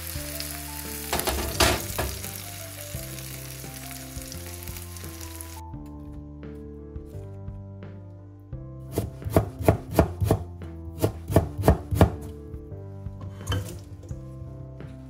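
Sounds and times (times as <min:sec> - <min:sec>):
knife chopping on wooden board: 0:08.9 - 0:12.3.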